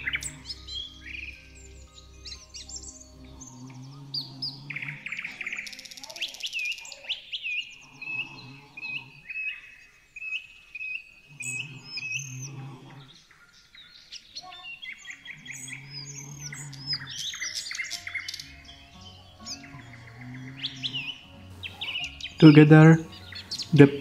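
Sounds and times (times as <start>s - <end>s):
soft background music: 0.0s - 6.0s, 15.2s - 24.0s
small birds chirping: 0.0s - 24.0s.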